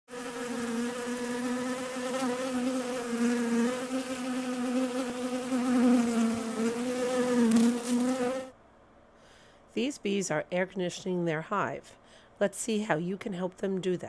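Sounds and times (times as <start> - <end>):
bees buzzing: 0.1 - 8.5.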